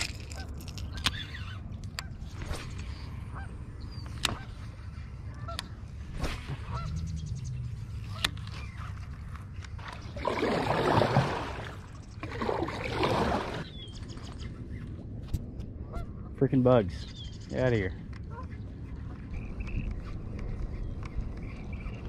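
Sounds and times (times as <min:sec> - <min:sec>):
low rumble: 0:00.0 - 0:10.2
geese honking: 0:06.6 - 0:07.0.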